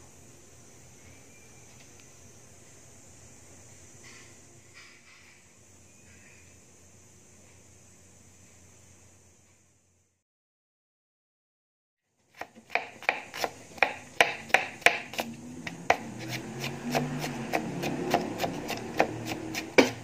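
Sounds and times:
knife chopping on plastic board: 12.4s - 20.0s.

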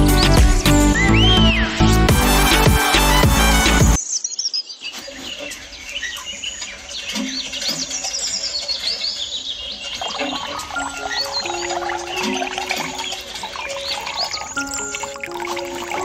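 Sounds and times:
small birds chirping: 4.0s - 16.0s.

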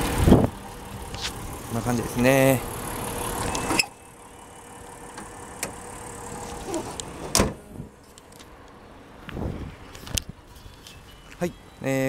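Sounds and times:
car hood slamming shut: 6.4s - 8.0s.

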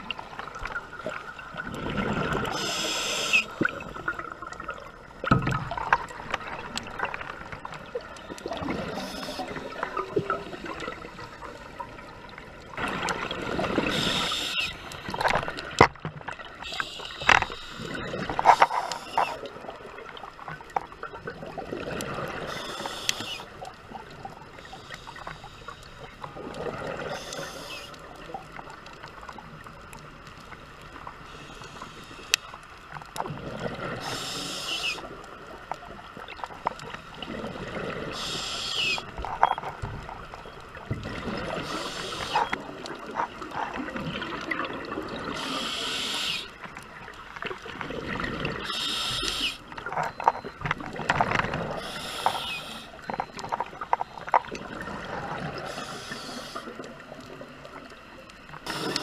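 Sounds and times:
regulator hissing inhale: 2.5s - 3.6s, 8.8s - 9.6s, 13.9s - 15.1s, 16.6s - 19.4s, 22.4s - 23.5s, 24.6s - 26.1s, 27.1s - 28.0s, 31.3s - 32.5s, 34.0s - 35.1s, 38.1s - 39.1s, 41.6s - 42.6s, 45.4s - 46.6s, 48.7s - 49.6s, 51.8s - 53.0s, 55.6s - 56.8s, 58.7s - 59.0s.

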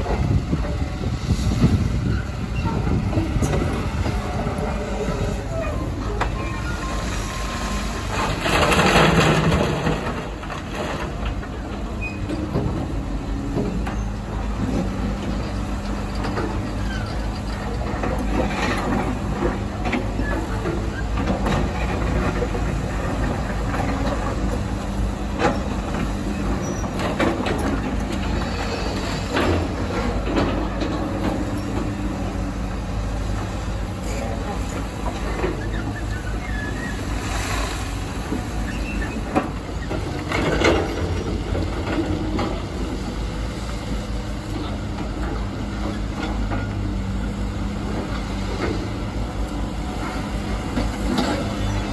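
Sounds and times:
excavator diesel engines running: 0.0s - 51.9s.

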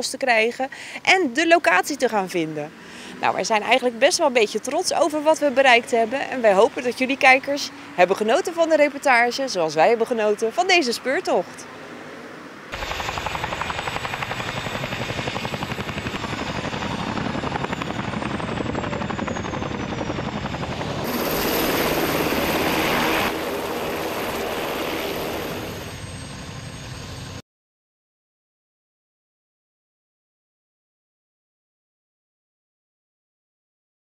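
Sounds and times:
helicopter rotor blades beating: 12.7s - 27.4s.

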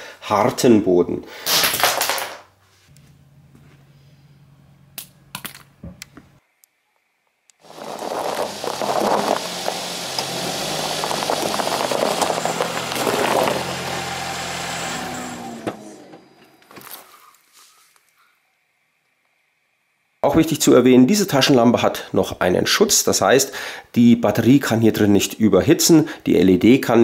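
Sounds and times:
room hum: 0.0s - 22.4s
car engine running: 7.6s - 16.7s
tyres rumbling: 7.6s - 16.9s.

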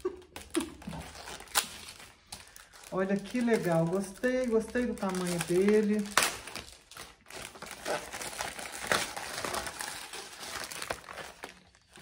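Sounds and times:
packaging crinkling: 0.0s - 12.0s.

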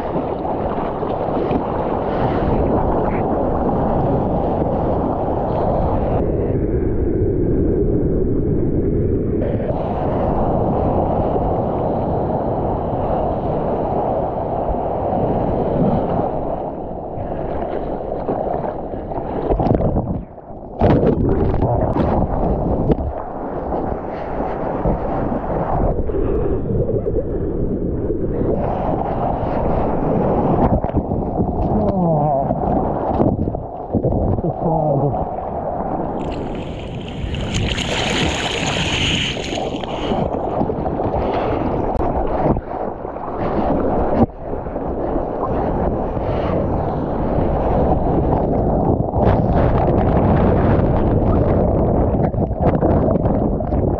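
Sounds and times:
underwater rush of water: 0.0s - 6.2s, 9.7s - 46.6s
water rushing and splashing: 0.0s - 6.2s, 31.6s - 44.4s
wind buffeting microphone: 0.0s - 53.9s
whitewater rushing: 36.2s - 40.4s.

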